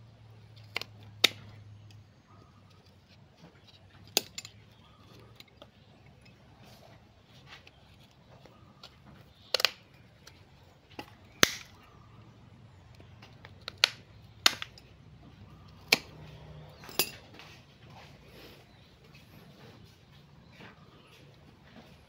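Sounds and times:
pruning shears snipping wood: 0:11.0 - 0:11.8, 0:13.6 - 0:14.8, 0:15.7 - 0:16.9.

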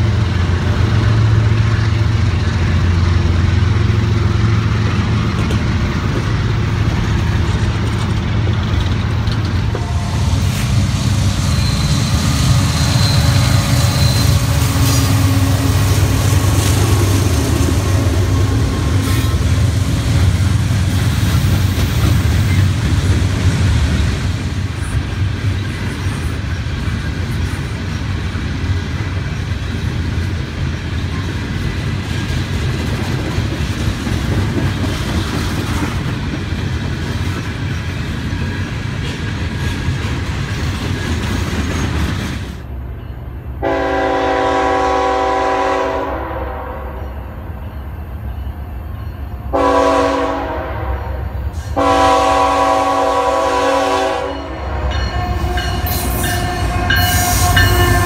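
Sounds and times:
diesel locomotive drone: 0:00.0 - 0:58.0
train wheels rumbling on rails: 0:00.0 - 0:58.0
high squeal: 0:09.8 - 0:16.0.

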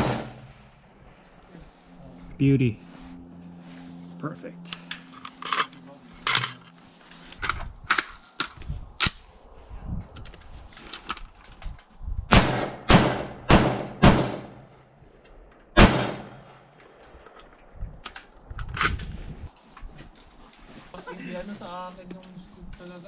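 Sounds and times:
rifle gunshots: 0:00.0 - 0:00.7, 0:12.3 - 0:14.7, 0:15.8 - 0:16.6.

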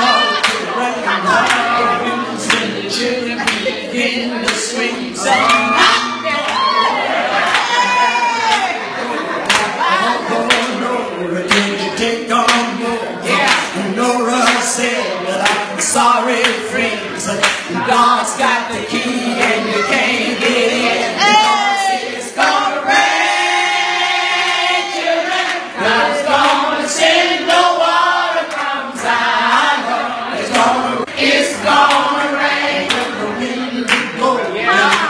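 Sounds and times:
voices singing along: 0:00.0 - 0:35.0
hands clapping on the beat: 0:00.4 - 0:00.7, 0:01.3 - 0:01.8, 0:02.4 - 0:02.8, 0:03.4 - 0:03.7, 0:04.4 - 0:04.7, 0:07.4 - 0:08.8, 0:09.4 - 0:11.8, 0:12.4 - 0:13.8, 0:14.4 - 0:14.7, 0:15.4 - 0:16.7, 0:17.3 - 0:17.8, 0:19.4 - 0:19.7, 0:20.4 - 0:21.7, 0:25.4 - 0:27.7, 0:28.4 - 0:29.7, 0:30.4 - 0:30.8, 0:31.7 - 0:33.2, 0:33.8 - 0:35.0.

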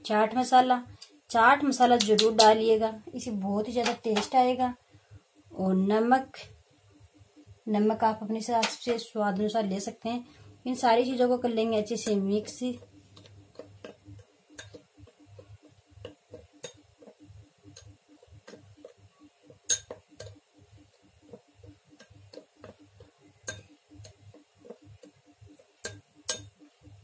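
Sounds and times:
spoon clinking on glass: 0:19.7 - 0:20.0.

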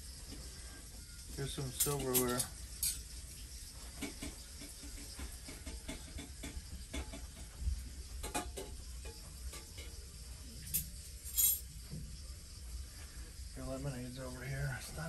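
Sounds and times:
cutlery clattering: 0:01.7 - 0:03.0, 0:08.2 - 0:09.8, 0:10.7 - 0:11.6
metal cutlery clinking: 0:01.7 - 0:03.0, 0:10.7 - 0:11.6.

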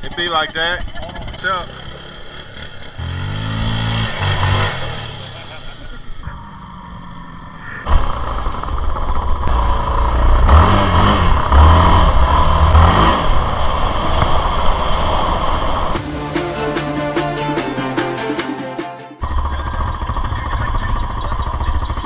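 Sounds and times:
quad engine revving: 0:00.0 - 0:07.2, 0:07.9 - 0:14.4
rushing noise: 0:03.7 - 0:10.2
background music: 0:16.0 - 0:19.2.

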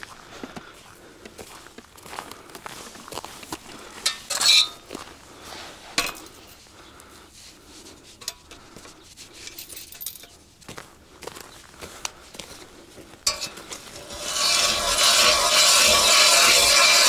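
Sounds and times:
metal parts clanking: 0:04.0 - 0:04.8, 0:13.3 - 0:17.0
metallic ring: 0:04.1 - 0:04.9, 0:13.3 - 0:17.0.

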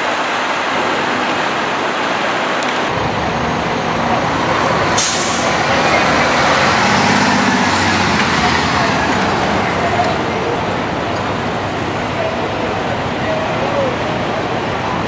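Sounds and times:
loud street noise: 0:00.0 - 0:15.0
diesel engine rumbling: 0:00.4 - 0:15.0
air brake hiss: 0:05.0 - 0:05.6.

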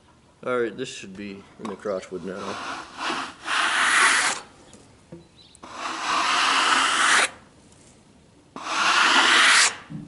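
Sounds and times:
brush sweeping sawdust off wood: 0:02.2 - 0:04.4, 0:05.7 - 0:07.3, 0:08.6 - 0:09.7.

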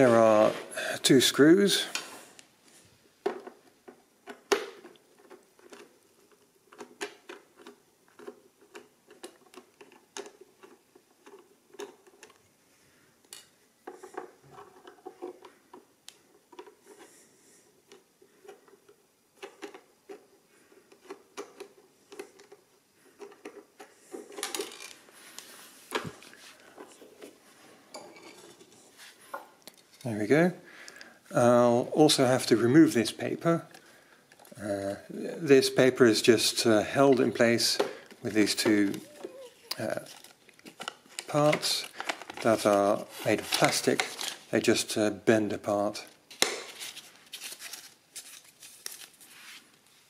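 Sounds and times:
handling noise: 0:17.9 - 0:30.4.

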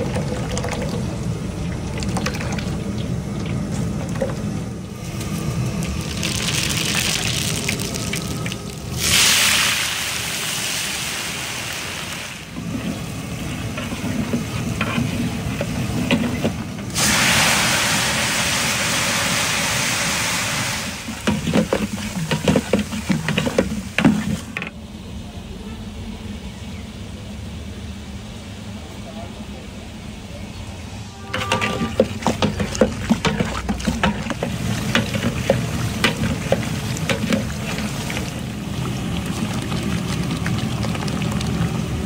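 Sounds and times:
spices sizzling in hot oil: 0:05.5 - 0:24.4, 0:31.5 - 0:42.0
metal spatula scraping a pot: 0:13.6 - 0:16.6, 0:21.2 - 0:24.4, 0:31.2 - 0:38.3.

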